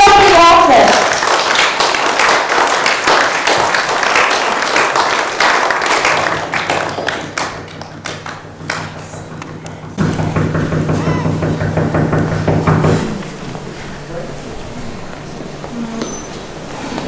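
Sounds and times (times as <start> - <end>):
audience clapping: 0.0 - 10.7
low steady hum: 6.1 - 17.0.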